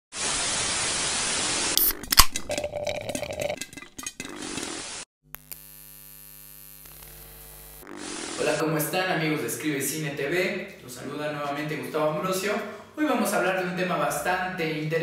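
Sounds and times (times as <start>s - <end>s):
television static hissing: 6.9s - 8.6s.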